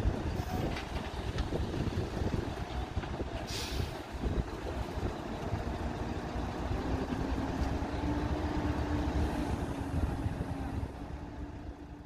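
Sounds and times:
diesel truck engines rumbling: 0:00.0 - 0:12.0
short hiss: 0:03.5 - 0:04.0.

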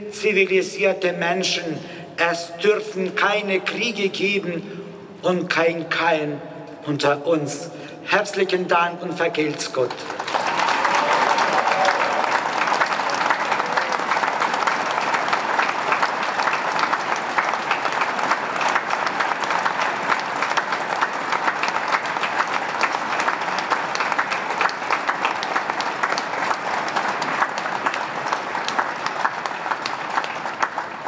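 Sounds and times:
crowd applauding: 0:09.9 - 0:31.0.

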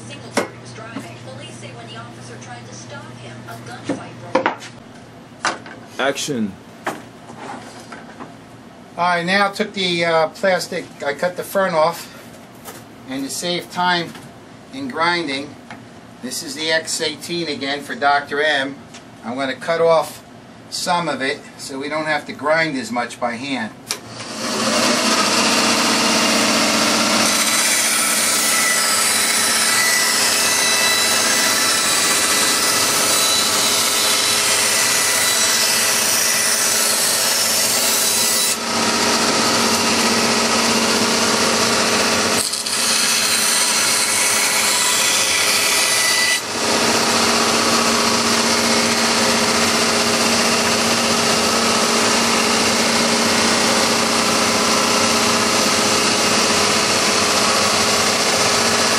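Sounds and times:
power saw cutting plastic: 0:23.9 - 0:58.9.

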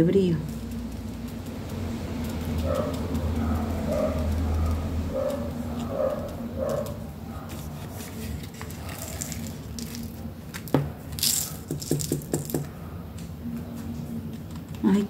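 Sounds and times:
glitter rattling in container: 0:08.2 - 0:10.3, 0:11.2 - 0:12.6.

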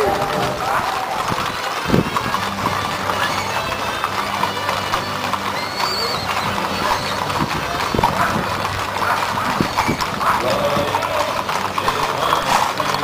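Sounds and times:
hooves clip-clopping on asphalt: 0:00.0 - 0:13.0.

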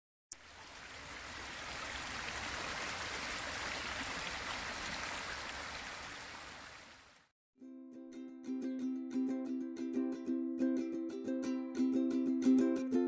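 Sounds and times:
brook rushing over stones: 0:00.3 - 0:07.2.

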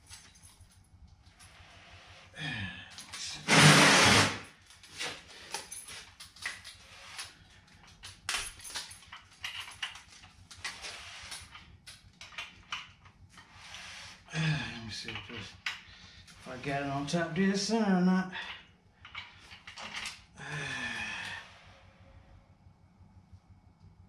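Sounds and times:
loud harsh burst: 0:03.5 - 0:04.5.

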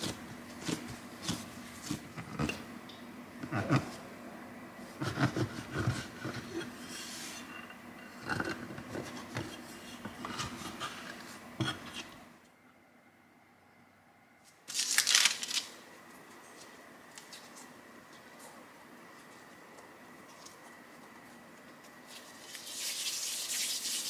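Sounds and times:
soft handling of dough: 0:16.0 - 0:23.4.

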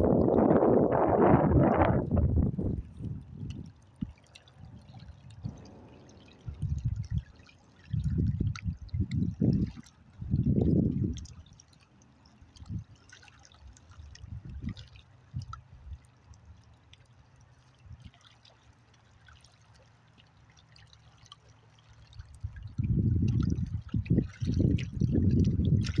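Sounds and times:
low rumbles buffeting microphone: 0:00.0 - 0:03.8, 0:04.6 - 0:11.3, 0:22.3 - 0:26.0
faint splashes and drips: 0:00.0 - 0:26.0
small waves lapping on rocks: 0:00.3 - 0:26.0.

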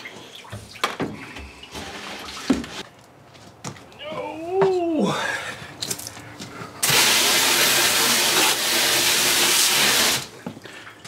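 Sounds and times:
water jet spraying into steel tank: 0:06.8 - 0:10.3.

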